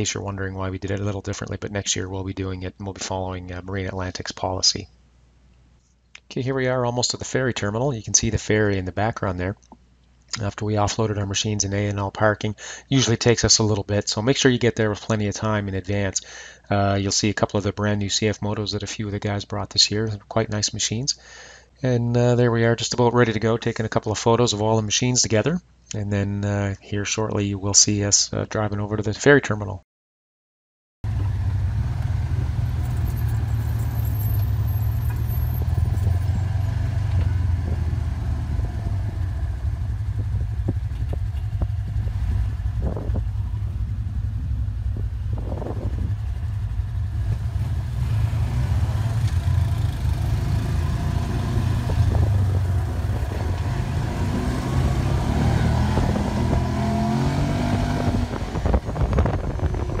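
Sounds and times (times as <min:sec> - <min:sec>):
utv engine drone: 0:31.0 - 1:00.0.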